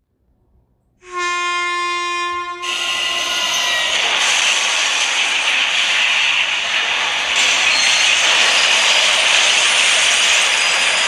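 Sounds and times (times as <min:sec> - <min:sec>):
locomotive air horn: 0:01.0 - 0:03.9
loud rushing hiss: 0:02.6 - 0:11.0.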